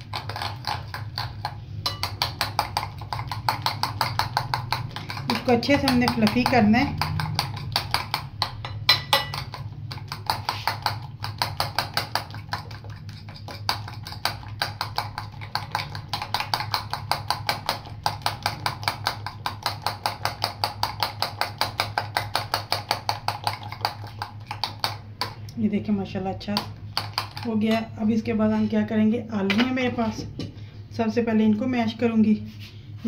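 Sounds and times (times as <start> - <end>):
whisk clicking against glass bowl: 0.0 - 25.5
low steady hum: 0.0 - 33.0.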